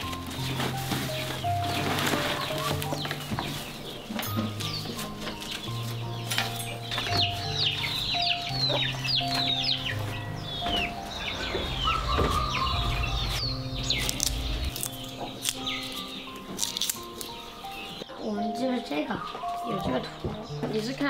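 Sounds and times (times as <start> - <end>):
soft background music: 0.0 - 21.0
chickens clucking: 0.4 - 18.0
high falling chirps: 6.2 - 18.0.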